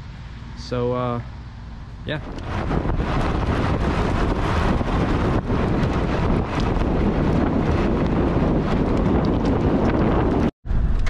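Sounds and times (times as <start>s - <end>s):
wind buffeting microphone: 1.7s - 11.0s
tyres rumbling on gravel: 2.1s - 10.5s.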